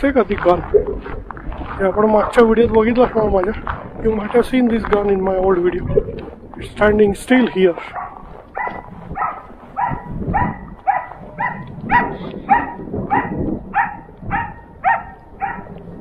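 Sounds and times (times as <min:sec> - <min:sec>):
dog barking: 0:07.8 - 0:15.8.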